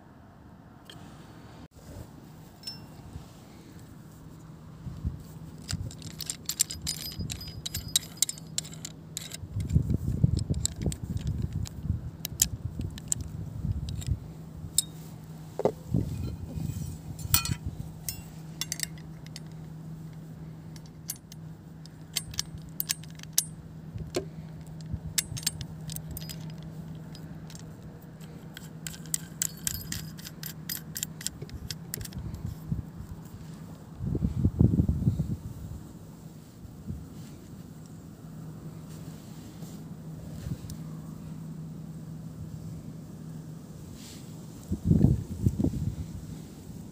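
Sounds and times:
low hum: 0.2 - 37.1
metal parts clicking and clinking: 5.2 - 33.5.

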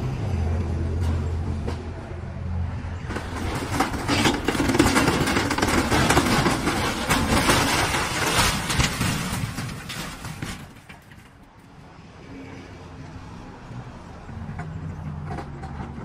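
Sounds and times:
excavator engine running: 0.0 - 11.6
metal clattering and crashing: 3.0 - 11.6
sheet metal crumpling: 3.1 - 11.4.

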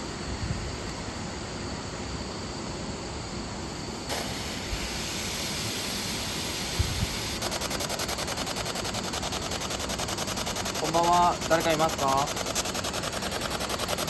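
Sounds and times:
radio static hiss: 4.0 - 14.0
fast even radio chopping: 7.4 - 14.0.

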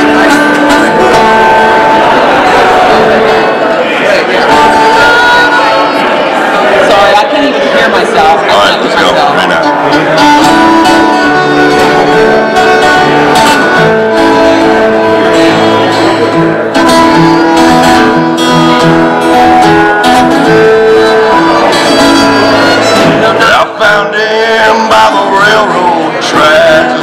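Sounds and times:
fiddle playing: 0.0 - 6.6, 8.7 - 27.0
plucked acoustic guitar: 0.0 - 6.8, 8.3 - 27.0.

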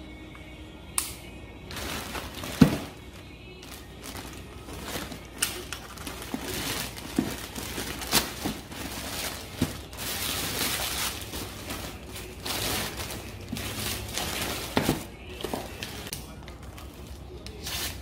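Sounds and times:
plastic bag crinkling and rustling: 1.7 - 16.1
plastic bag ripping: 1.7 - 16.1.

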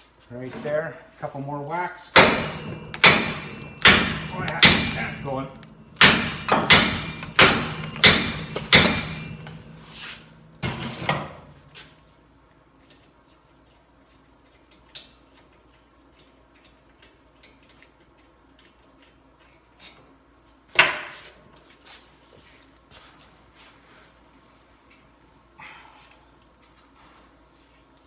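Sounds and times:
hammer striking steel: 2.1 - 11.6
loud metal clank: 2.2 - 11.6.

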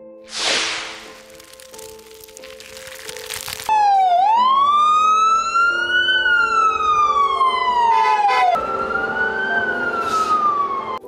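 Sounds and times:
ambulance siren wailing: 3.7 - 11.0.

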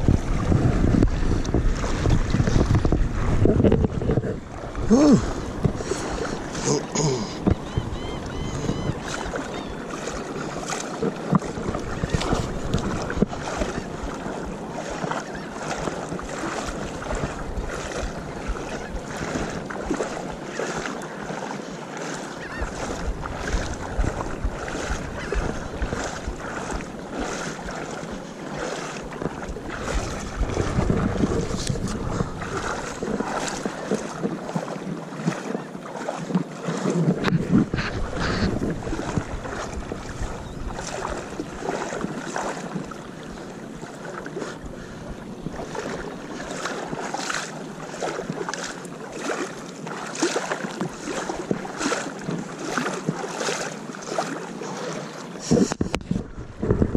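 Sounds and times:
wind buffeting microphone: 0.0 - 6.6, 7.3 - 20.3, 22.4 - 28.1, 29.1 - 34.4, 36.9 - 43.4, 55.4 - 56.9
water sloshing from wading: 0.0 - 56.9.

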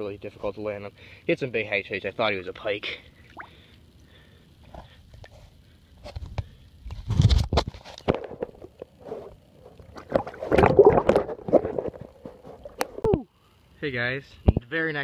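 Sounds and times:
water splashing and gurgling: 3.2 - 3.7, 8.2 - 13.1.

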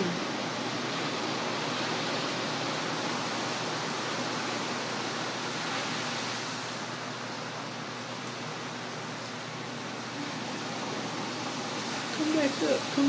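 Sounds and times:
ocean surf breaking: 0.0 - 7.6.

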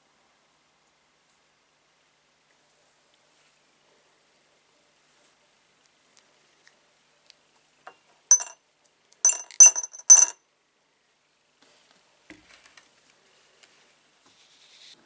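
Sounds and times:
metal nuts clinking into glass jar: 8.3 - 8.6, 9.3 - 10.4.

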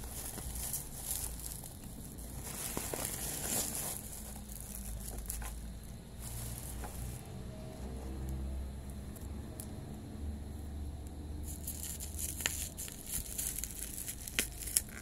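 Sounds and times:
bubble wrap crinkling: 0.0 - 8.4, 11.4 - 15.0.

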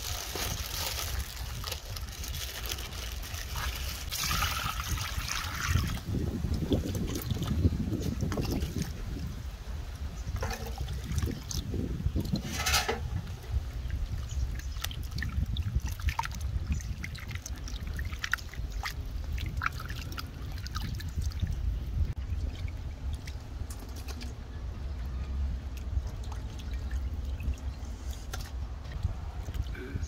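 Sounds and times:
hands sloshing in bowl of water: 0.0 - 9.1, 10.4 - 13.2, 14.5 - 21.5
water splashing and dripping: 0.0 - 9.4, 10.0 - 29.8.

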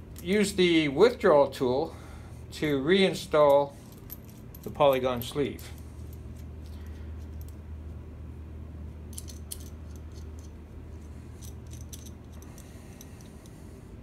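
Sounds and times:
steady low hum: 0.0 - 14.0
metal tool and screws clinking: 9.1 - 10.6, 11.4 - 13.4.

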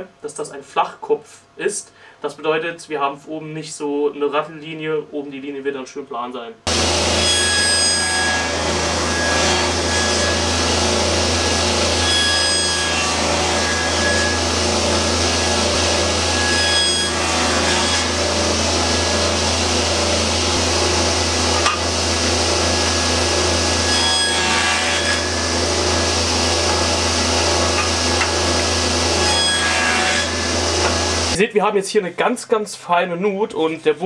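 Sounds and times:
table saw cutting wood: 6.7 - 31.4.

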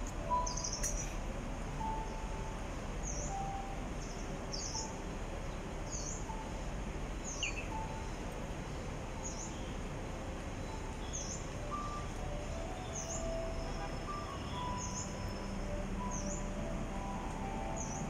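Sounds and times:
city background hum: 0.0 - 18.0
small bird chirping: 0.4 - 1.2, 7.2 - 7.8.

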